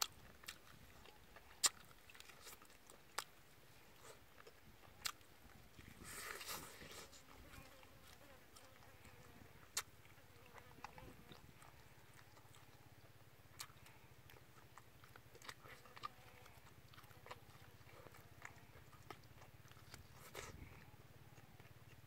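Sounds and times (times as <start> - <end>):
wet mouth clicks and smacks: 0.0 - 3.4, 9.6 - 10.1
person chewing chicken: 0.0 - 22.0.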